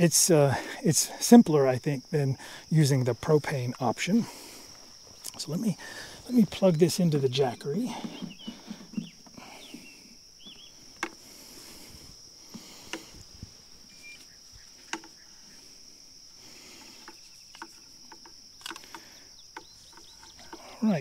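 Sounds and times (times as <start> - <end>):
insects chirring: 0.0 - 21.0
sharp clicks: 16.8 - 20.7.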